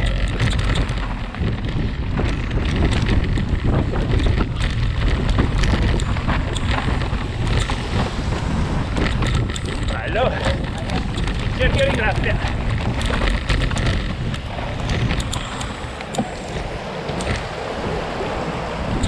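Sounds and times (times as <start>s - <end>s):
bike clicks and rattles: 0.0s - 19.0s
tyres rumbling on dirt: 0.0s - 19.0s
wind buffeting microphone: 0.0s - 19.0s.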